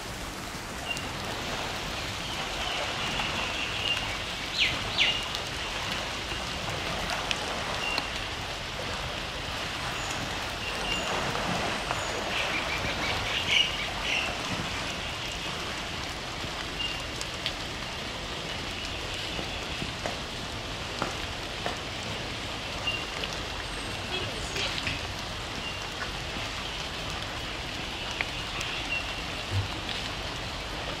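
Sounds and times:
steady rain falling: 0.0 - 31.0
birds chirping: 1.9 - 5.3.

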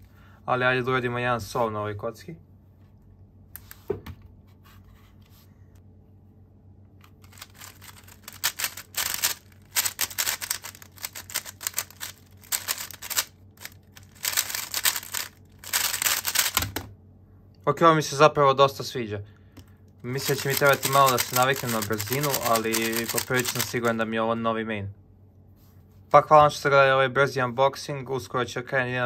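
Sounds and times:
plastic puzzle cube clicking: 7.3 - 16.8, 20.1 - 24.0.

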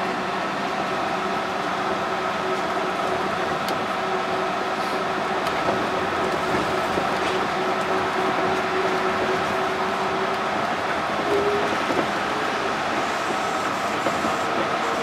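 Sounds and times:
train rolling noise: 0.0 - 15.0.

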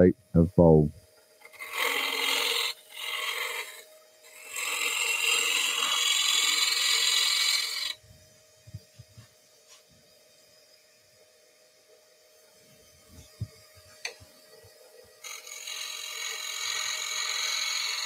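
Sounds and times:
gouge cutting wood on a lathe: 1.4 - 8.0, 15.2 - 18.0
lathe humming: 1.4 - 8.0, 13.2 - 18.0.

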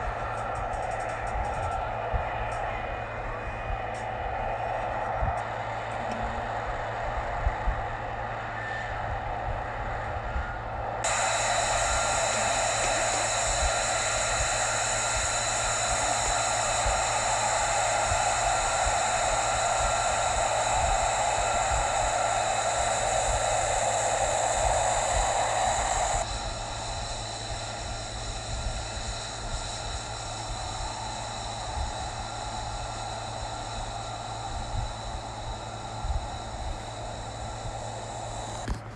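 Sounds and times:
high turbine whine: 0.0 - 38.9
jet engine exhaust rush: 0.0 - 38.9.

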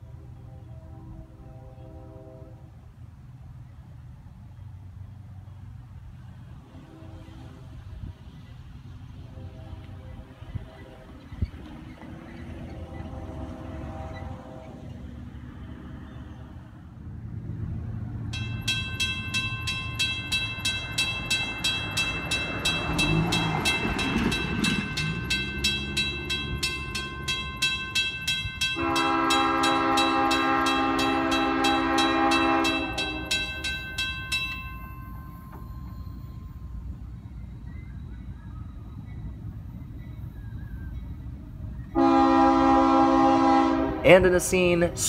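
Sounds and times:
locomotive horn blast: 0.0 - 2.8, 6.6 - 8.0, 9.2 - 11.3, 12.5 - 15.3, 28.6 - 33.6, 41.9 - 45.0
crossing bell ringing: 18.2 - 45.0.

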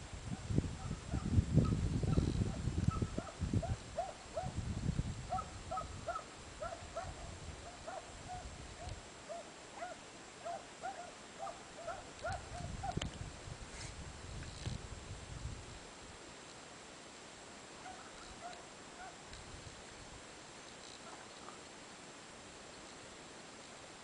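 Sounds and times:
wind rumble on microphone: 0.0 - 9.1, 11.4 - 16.0
hounds yelping barks: 2.9 - 4.6, 5.3 - 13.0, 17.8 - 19.2.

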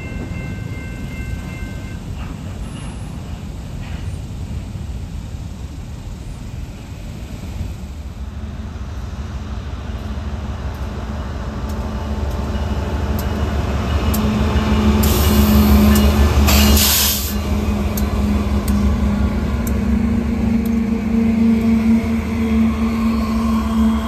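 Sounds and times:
train engine hum: 0.0 - 24.0
train rumble: 0.0 - 24.0.

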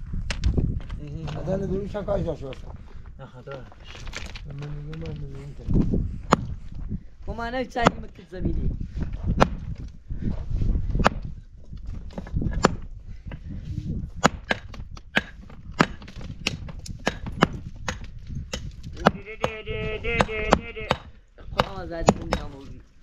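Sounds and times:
wavering call: 19.2 - 21.0.

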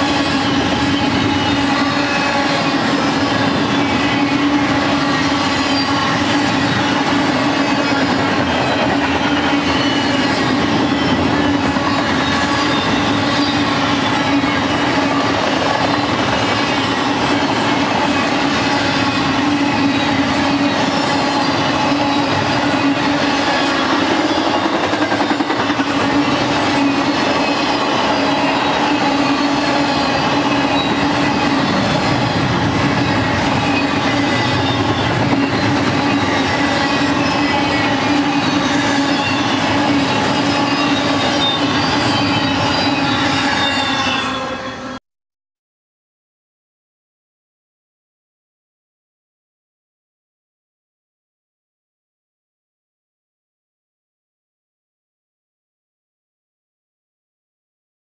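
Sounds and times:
freight train wheels rumbling on rails: 0.0 - 45.0.

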